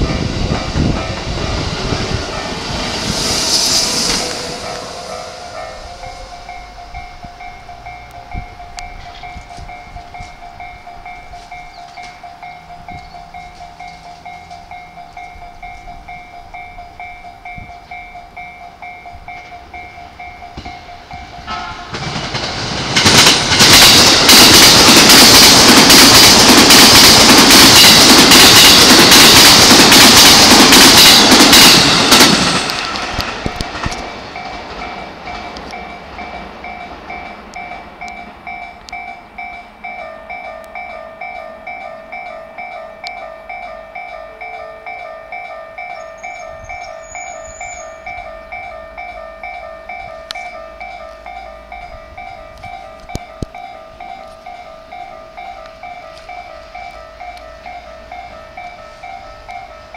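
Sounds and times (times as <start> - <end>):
electric train passing: 0.0 - 59.9
level crossing bell ringing: 4.6 - 21.6, 33.7 - 59.9.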